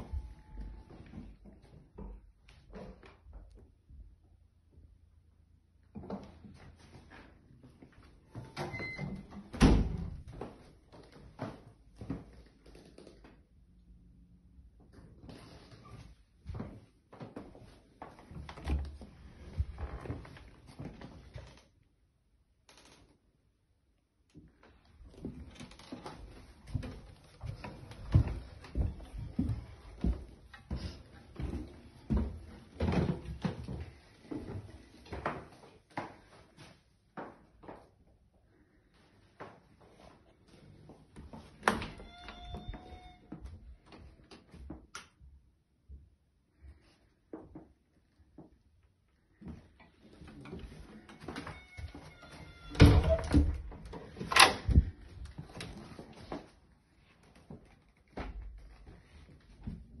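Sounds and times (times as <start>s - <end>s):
footsteps on carpeted stairs: 15.2s - 21.2s, 25.0s - 37.9s
door creaking: 41.6s - 43.5s, 50.5s - 55.0s.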